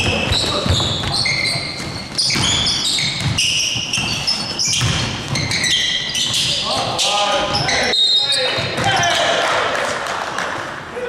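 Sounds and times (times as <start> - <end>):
basketball bouncing thuds: 0.0 - 7.0
basketball shoes squeaking: 0.0 - 9.3.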